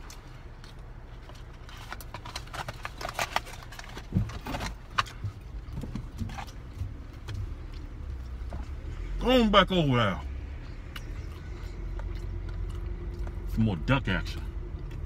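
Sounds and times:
car engine rumble: 0:00.0 - 0:15.0
rustling of food wrappers: 0:01.1 - 0:05.4.

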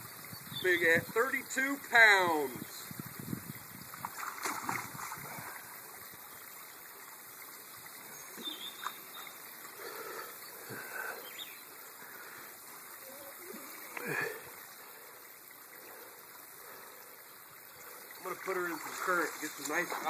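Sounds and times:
river water trickling: 0:00.0 - 0:20.0
light water splashes: 0:01.5 - 0:20.0.

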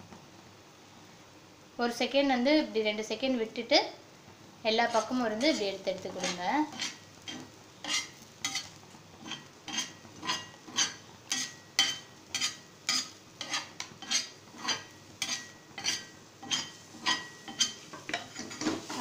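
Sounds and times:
metal spatula scraping and tapping: 0:04.9 - 0:19.0.

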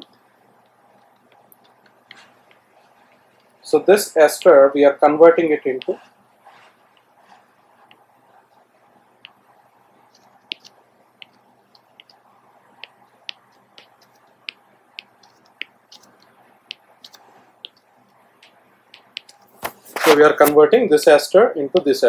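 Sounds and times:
stylus tapping on drawing tablet: 0:10.1 - 0:19.4.

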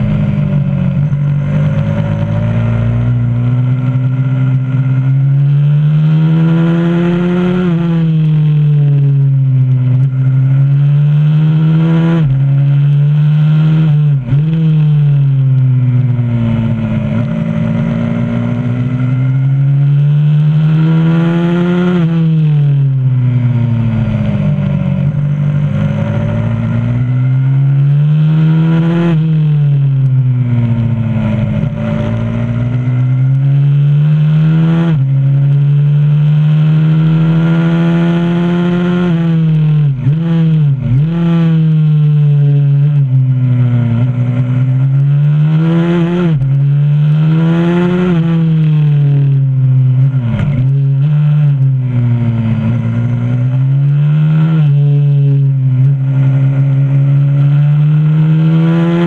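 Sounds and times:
pit bike engine revving: 0:23.8 - 0:43.0, 0:43.9 - 0:59.0.

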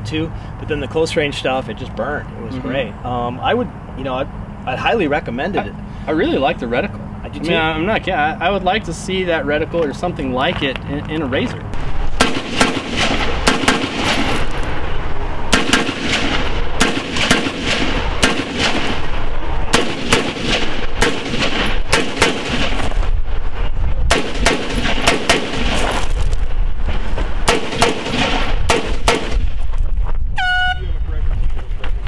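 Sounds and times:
rifle shots: 0:12.1 - 0:14.6, 0:15.5 - 0:23.0, 0:24.1 - 0:26.0, 0:27.4 - 0:29.6.

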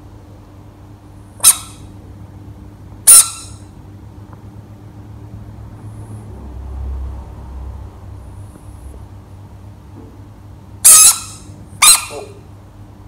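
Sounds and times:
squeaky toy squeaks: 0:01.4 - 0:01.8, 0:03.1 - 0:03.6, 0:10.8 - 0:12.4.

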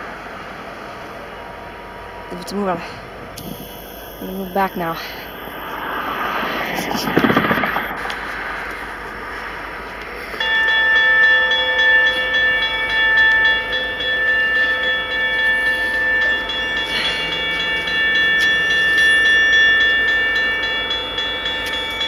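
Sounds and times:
locomotive horn chord: 0:12.8 - 0:22.0.

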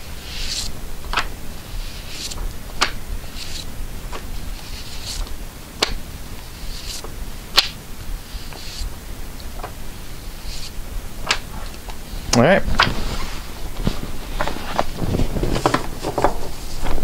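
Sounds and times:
comic book pages rustling: 0:00.2 - 0:05.4, 0:12.7 - 0:17.0
sharp paper snaps: 0:05.0 - 0:06.0, 0:07.6 - 0:07.8, 0:11.2 - 0:11.5.

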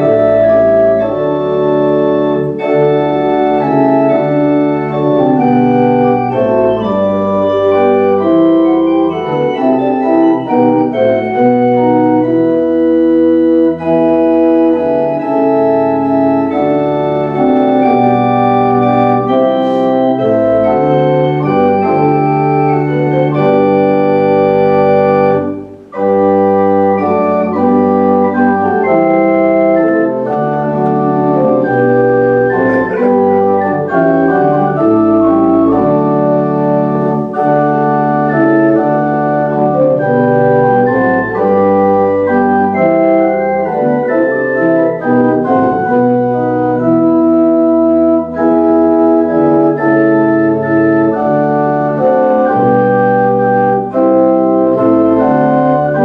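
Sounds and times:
organ playing a hymn: 0:00.0 - 0:56.0.

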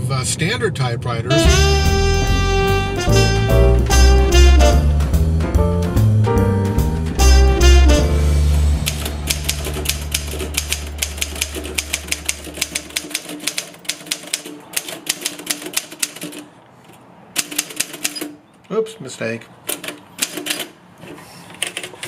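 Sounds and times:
manual typewriter key strikes: 0:08.8 - 0:16.5, 0:17.4 - 0:18.4, 0:19.7 - 0:20.7.

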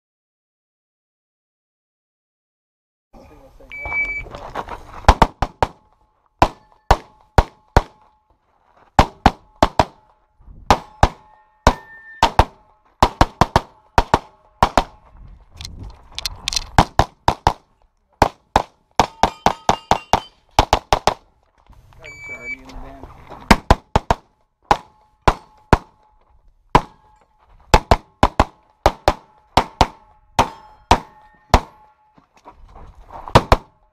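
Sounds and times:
pistol shots: 0:10.7 - 0:15.0, 0:23.5 - 0:26.0, 0:27.7 - 0:31.9
steel targets ringing: 0:10.8 - 0:12.7, 0:19.0 - 0:20.5, 0:29.3 - 0:32.2.

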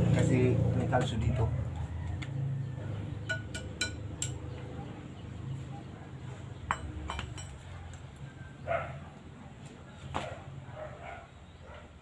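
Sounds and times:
dog barking: 0:04.7 - 0:06.5, 0:07.6 - 0:08.0, 0:08.6 - 0:12.0
metal tools clinking on car jack: 0:06.7 - 0:07.6.

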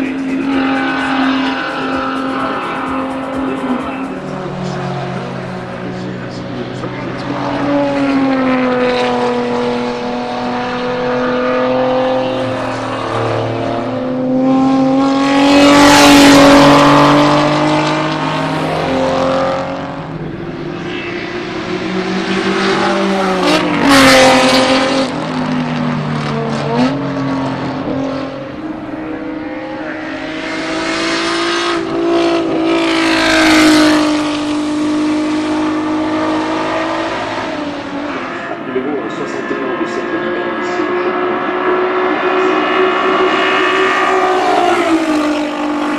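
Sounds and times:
race cars passing at speed: 0:00.0 - 0:45.9.

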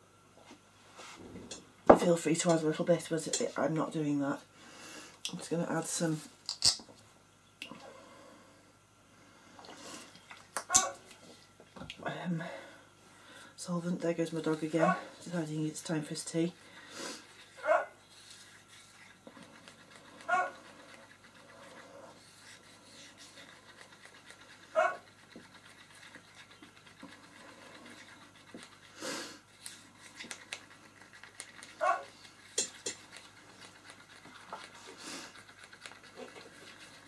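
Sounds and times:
dog barking: 0:10.7 - 0:11.0, 0:17.6 - 0:17.9, 0:20.3 - 0:20.6, 0:24.8 - 0:25.0, 0:31.8 - 0:32.1.

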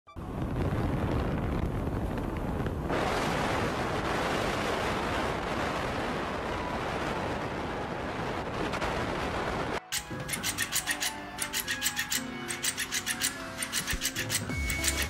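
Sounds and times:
wind rushing through car window: 0:00.2 - 0:09.8.

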